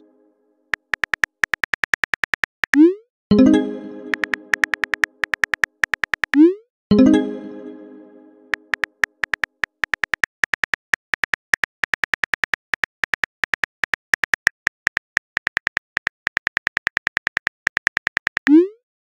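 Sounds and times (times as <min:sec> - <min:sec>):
phone keyboard clicks: 0:00.7 - 0:02.8, 0:04.1 - 0:06.4, 0:08.5 - 0:18.5.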